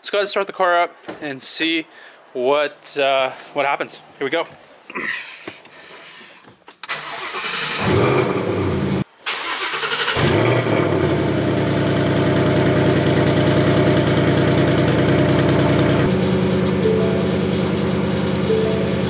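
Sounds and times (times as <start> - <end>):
car engine starting and idling: 6.8 - 19.0.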